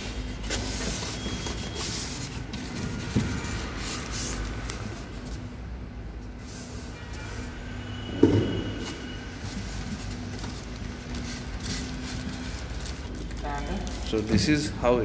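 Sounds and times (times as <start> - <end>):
packing scraping and rustling: 0.0 - 5.5, 8.5 - 14.7.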